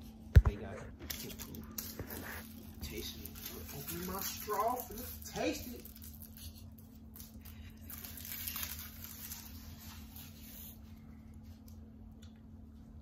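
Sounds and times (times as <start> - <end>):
low steady hum: 0.0 - 13.0
plastic straw wrapper crinkling: 1.0 - 10.8.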